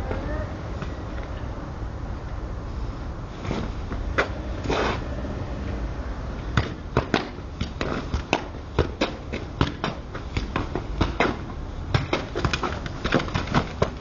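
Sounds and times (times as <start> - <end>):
ball kicked and bouncing off paving: 3.5 - 5.0, 6.5 - 14.0
ball hitting brick wall: 6.5 - 14.0.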